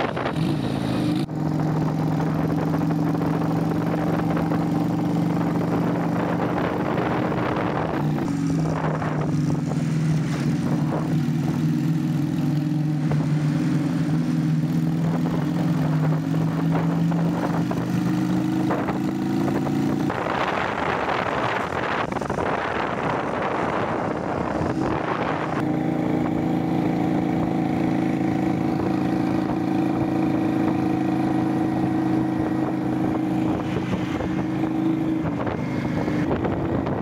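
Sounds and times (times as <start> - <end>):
motorcycle engine running: 0.0 - 37.0
wind rushing over microphone: 0.0 - 37.0.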